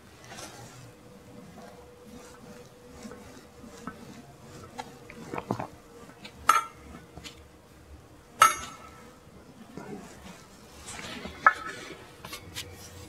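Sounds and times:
faint steady hum: 0.0 - 13.0
metal vessels clinking: 8.4 - 9.1.

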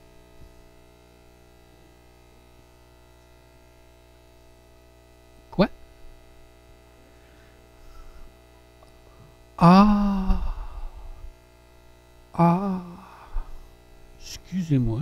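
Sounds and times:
electrical mains hum: 0.0 - 15.0
person speaking: 12.4 - 13.3.

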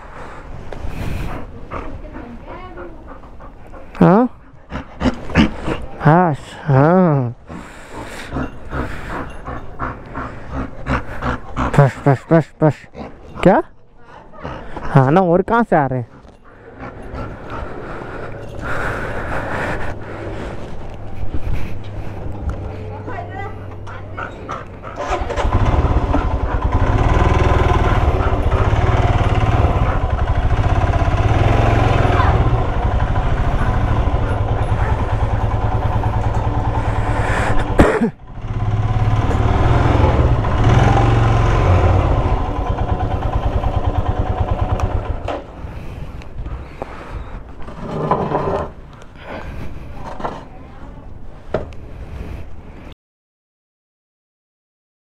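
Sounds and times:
motorcycle engine running: 25.0 - 46.0.

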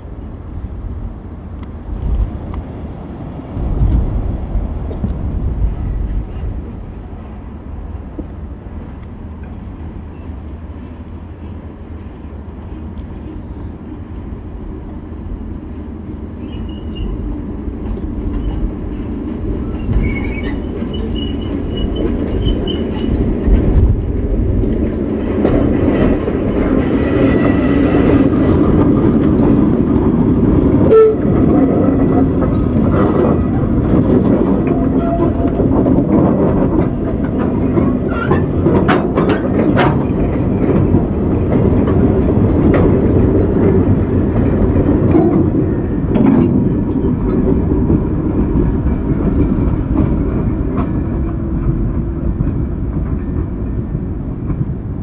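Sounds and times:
diesel locomotive engine: 0.0 - 55.0
wagons rattling over rail joints: 16.4 - 55.0.

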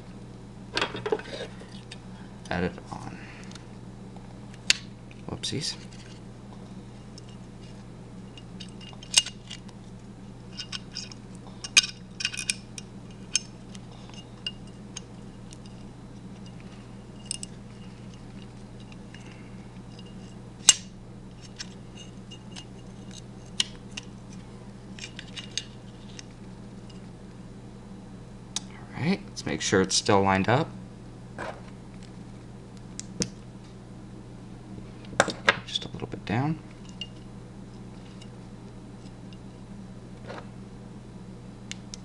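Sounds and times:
low hum: 0.0 - 42.0
metal parts clicking and clinking: 8.6 - 9.7, 10.5 - 12.6.

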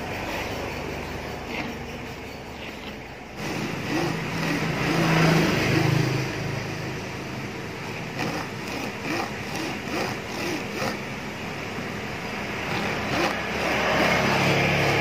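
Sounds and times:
electric drill motor hum: 3.4 - 5.8, 7.8 - 15.0
file rasping on metal: 8.2 - 11.1.

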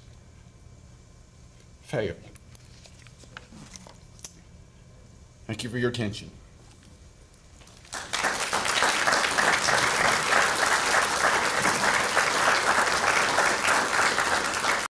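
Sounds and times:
audience applauding: 7.8 - 14.9.

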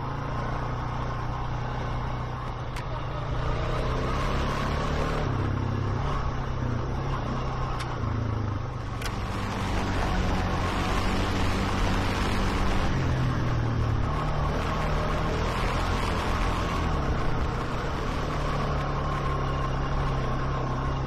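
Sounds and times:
atv engine running: 5.3 - 21.0.

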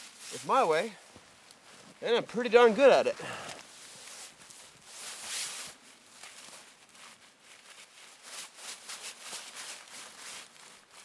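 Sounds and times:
fabric swishing and rustling: 3.7 - 11.0.

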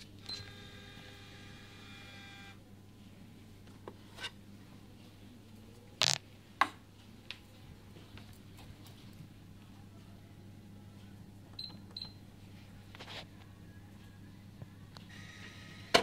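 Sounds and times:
multi-tone machine whine: 0.3 - 2.6.

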